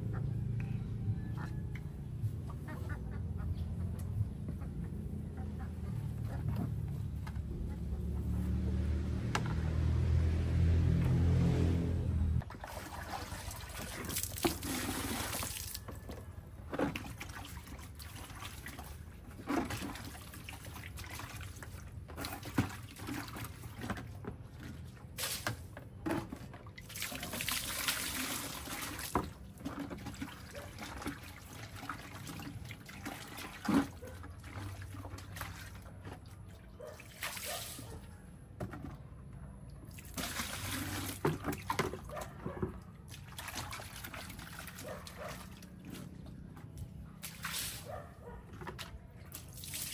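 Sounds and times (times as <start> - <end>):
water pouring and splashing: 12.4 - 38.0, 39.9 - 49.9.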